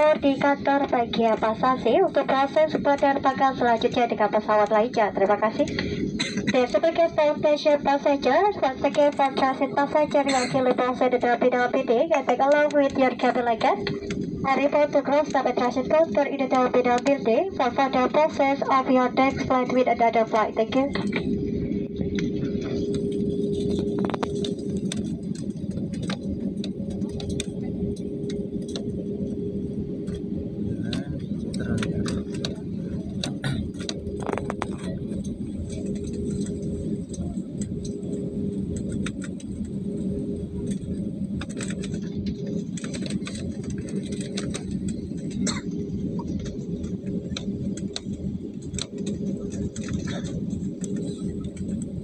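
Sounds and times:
jet engines idling: 0.0 - 52.0
clicks and rattles in cabin: 22.2 - 28.9, 30.9 - 39.8, 40.6 - 52.0.

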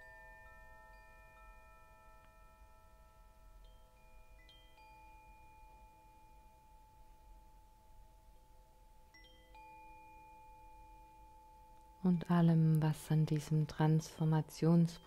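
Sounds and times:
chimes ringing: 0.0 - 7.8, 9.0 - 12.8.

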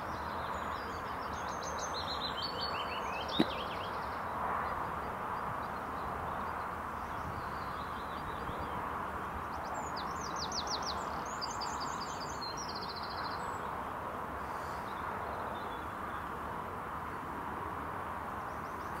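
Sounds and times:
songbird singing trill: 0.0 - 8.8
steady outdoor hiss: 0.0 - 19.0.

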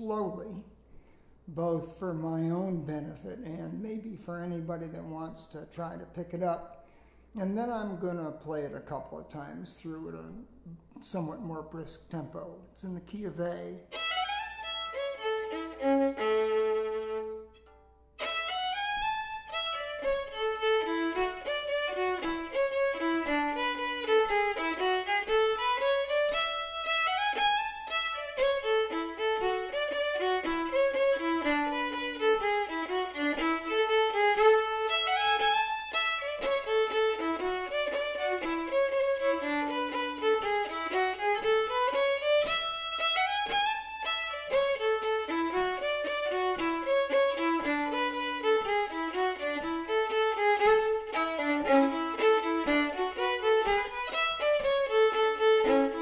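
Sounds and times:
solo fiddle playing a reel: 13.2 - 56.0.

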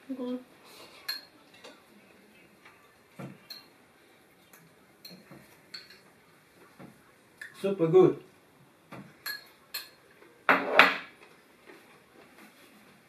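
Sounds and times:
cutlery clinking on porcelain bowls: 1.0 - 1.8, 3.3 - 3.7, 4.5 - 6.1, 9.2 - 11.1.

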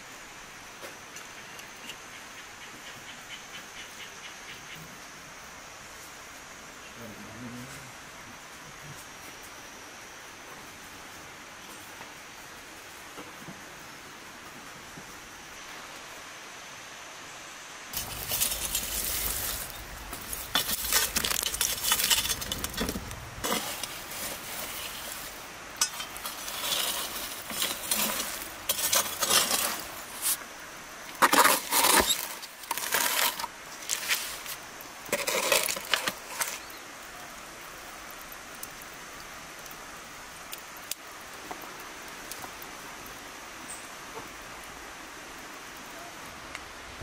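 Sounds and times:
metal tool scraping embers: 17.9 - 30.4, 31.1 - 36.7.

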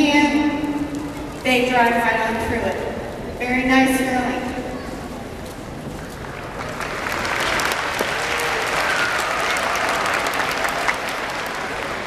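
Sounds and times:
crowd applauding: 6.1 - 12.0.

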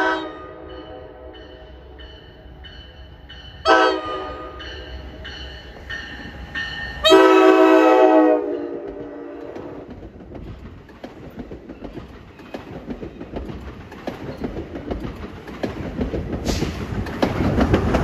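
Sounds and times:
train horn blasts: 0.0 - 1.4, 3.6 - 4.6, 7.0 - 9.8
train coaches rumbling past: 0.0 - 18.0.

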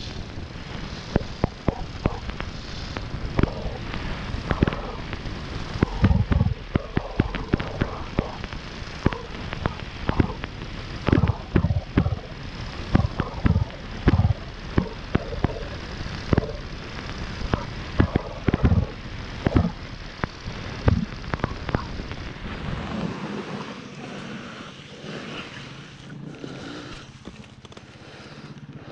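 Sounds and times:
steady rushing noise: 0.0 - 28.9
dirt bike engine pops: 1.2 - 22.4.

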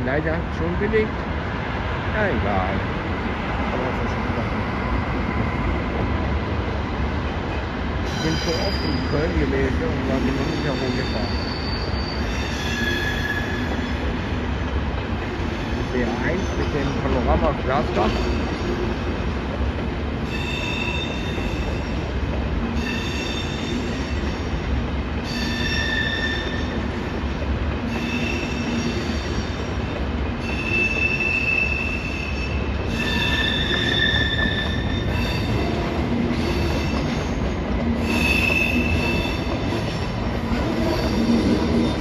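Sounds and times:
low rumble of train: 0.0 - 42.0
train wheels squealing: 8.0 - 14.5, 15.4 - 19.0, 20.2 - 22.1, 22.7 - 24.6, 25.2 - 27.0, 27.8 - 42.0.

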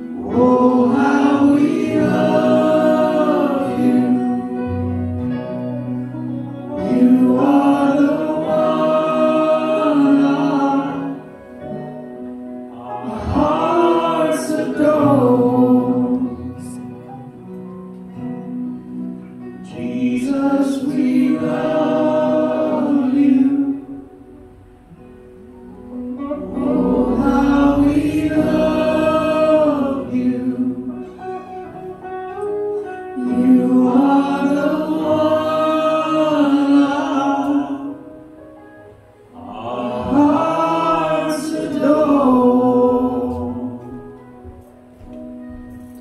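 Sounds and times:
voices singing gospel song: 0.0 - 5.3, 6.7 - 12.0, 12.6 - 16.9, 19.6 - 24.4, 25.9 - 31.8, 33.1 - 38.3, 39.3 - 44.2
guitar and keyboard: 0.0 - 46.0.

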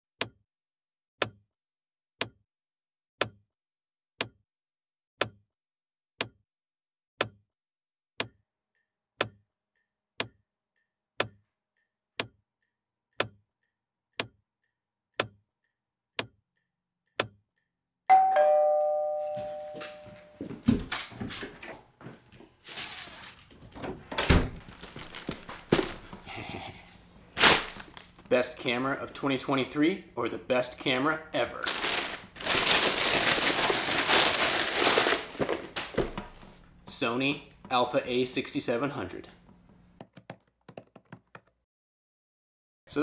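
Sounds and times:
clock ticking: 8.2 - 17.7
two-note doorbell chime: 18.1 - 20.5.

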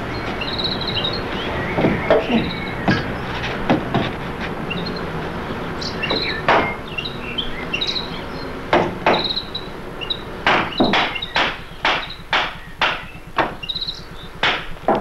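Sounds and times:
hammer striking wood: 1.8 - 4.2, 6.1 - 6.8, 8.7 - 9.4, 10.4 - 13.6, 14.4 - 15.0.

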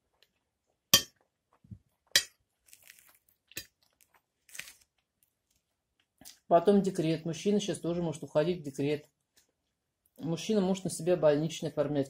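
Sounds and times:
food crunching: 0.0 - 6.5.

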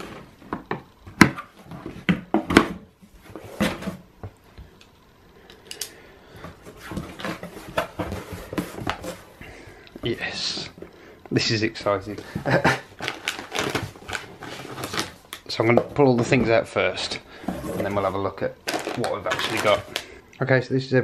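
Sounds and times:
packing tape cutting: 13.0 - 15.2.

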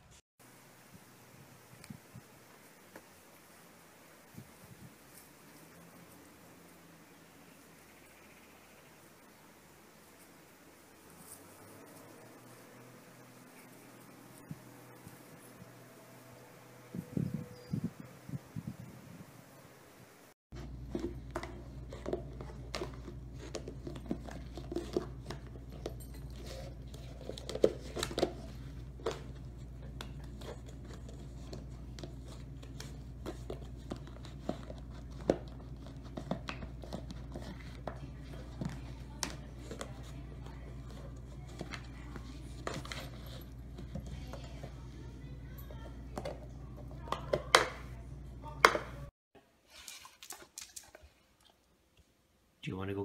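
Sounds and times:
puppy chewing plastic bottle: 20.6 - 44.8.

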